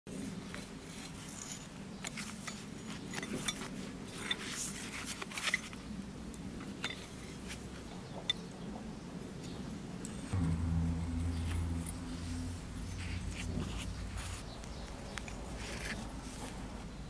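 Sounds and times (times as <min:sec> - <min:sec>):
metallic clicks and scrapes: 0:00.5 - 0:05.9
steady low hum: 0:09.1 - 0:17.0.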